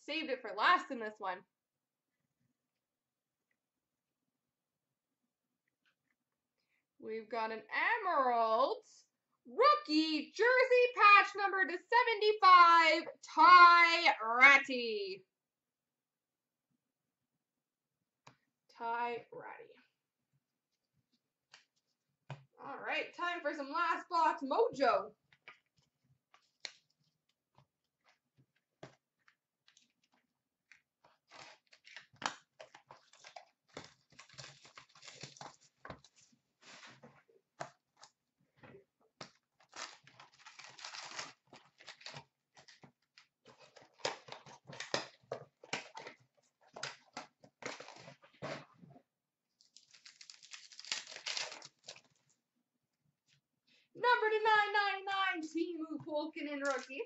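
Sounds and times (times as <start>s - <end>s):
wrapping crinkling and tearing: 25.4s - 37.0s, 39.2s - 48.6s, 49.6s - 52.4s, 56.6s - 57.0s.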